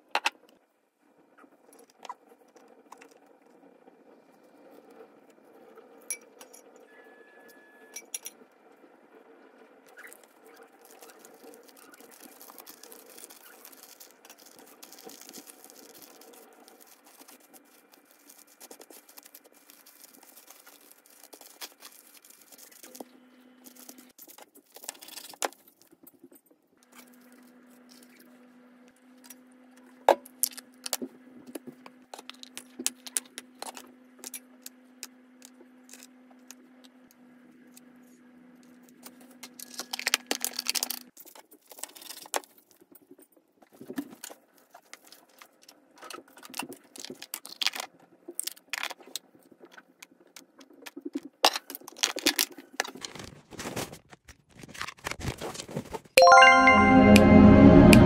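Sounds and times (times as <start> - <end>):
plastic cling film crinkling: 10.0 - 23.0, 51.7 - 56.1.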